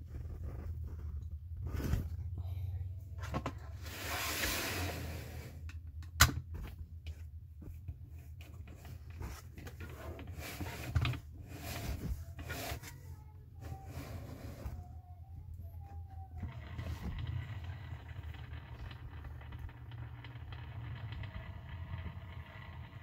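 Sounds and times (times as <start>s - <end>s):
rubbing and scraping: 0.0s - 2.4s, 7.6s - 15.0s.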